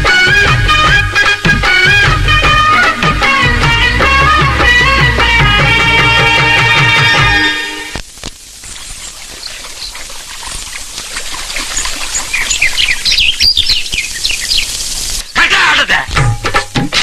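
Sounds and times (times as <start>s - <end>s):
faint background hiss: 5.8s - 17.0s
birds chirping: 8.5s - 15.9s.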